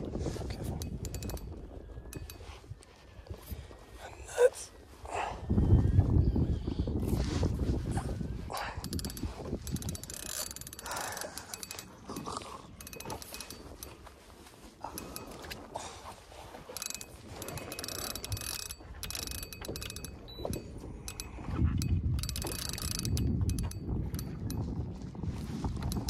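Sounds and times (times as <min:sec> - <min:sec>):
wind: 0:00.0 - 0:26.0
fishing reel ratcheting and clicking: 0:00.4 - 0:02.8, 0:08.6 - 0:14.1, 0:14.9 - 0:15.8, 0:16.6 - 0:24.8, 0:25.7 - 0:26.0.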